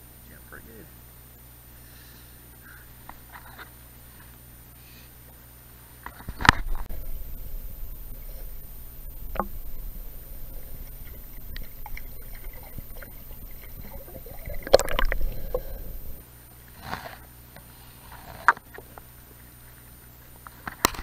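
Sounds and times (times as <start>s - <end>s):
muffled underwater stream rumble: 6.4s - 16.2s
water splashing: 6.4s - 16.2s.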